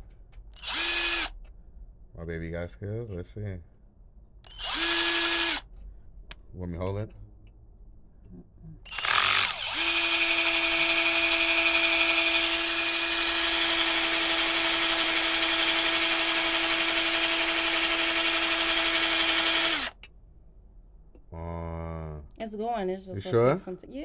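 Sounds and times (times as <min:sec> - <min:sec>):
cordless drill boring into steel: 0:00.6 - 0:01.3, 0:04.5 - 0:05.6, 0:08.9 - 0:20.0.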